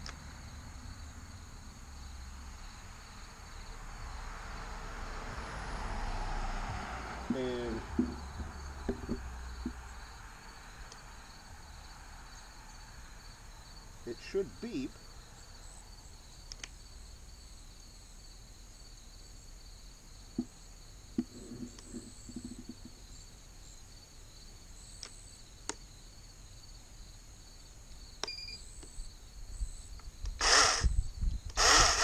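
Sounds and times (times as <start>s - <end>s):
insect chirring: 7.3s - 32.0s
electric chainsaw whirring: 30.3s - 32.0s.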